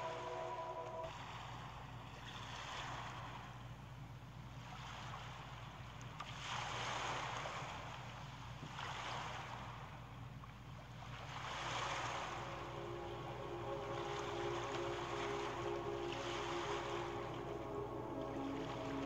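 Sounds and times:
ocean waves washing in: 0.0s - 1.4s, 11.1s - 19.0s.

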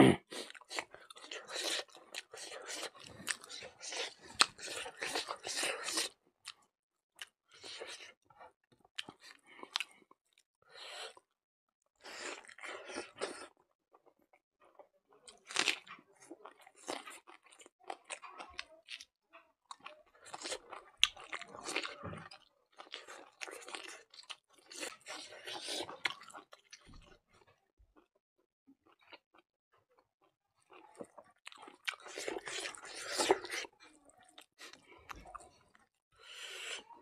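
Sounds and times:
person chewing crunchy food: 0.1s - 11.2s, 12.0s - 19.1s, 19.7s - 28.1s, 30.2s - 37.0s.

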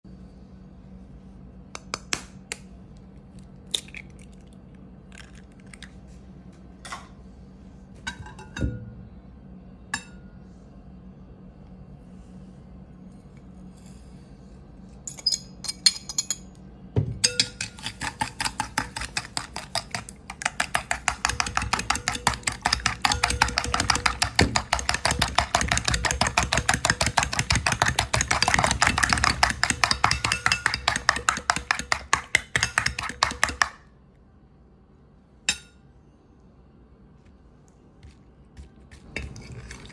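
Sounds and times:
fork beating egg on plate: 17.3s - 33.8s.

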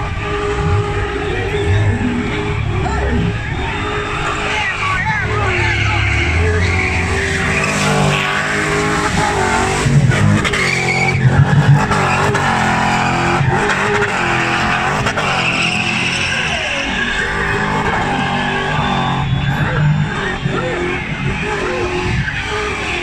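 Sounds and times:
car engine revving: 0.0s - 23.0s
tyres squealing: 0.0s - 23.0s.

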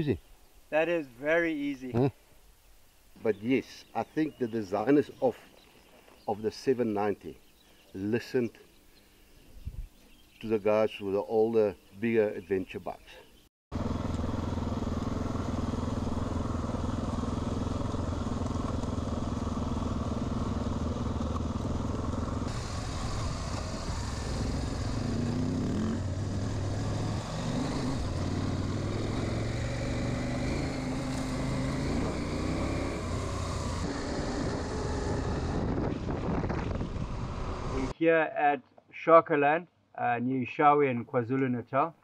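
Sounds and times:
motorcycle engines off-road: 12.0s - 38.0s.

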